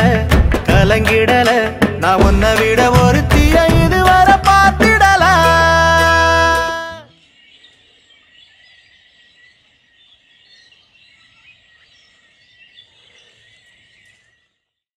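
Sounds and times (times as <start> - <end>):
bird chirps: 7.0 - 14.8.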